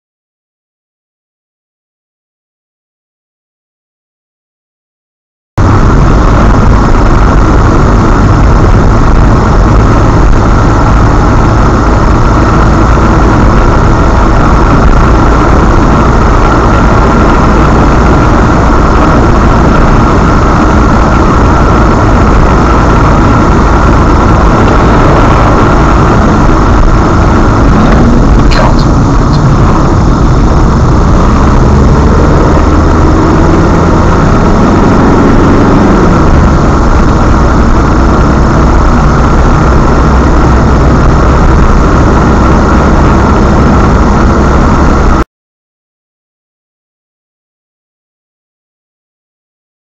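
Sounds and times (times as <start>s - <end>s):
car road and engine noise: 5.6s - 45.2s
engine note rising: 5.6s - 45.2s.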